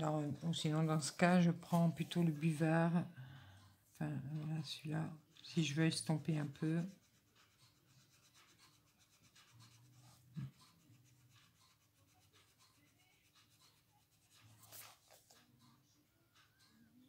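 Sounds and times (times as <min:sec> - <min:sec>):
blending stump scratching on paper: 0:05.3 - 0:15.4.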